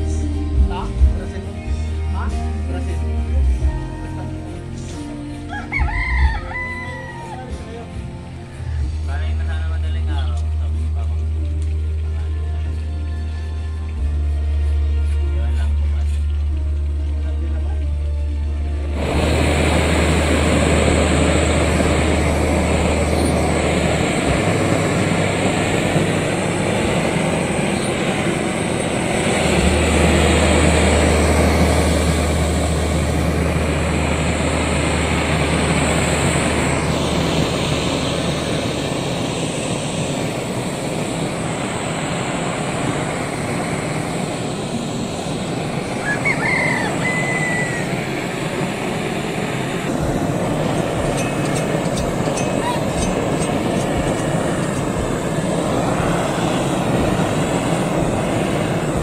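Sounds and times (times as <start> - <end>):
gas blowtorch rushing: 15.8 - 59.0.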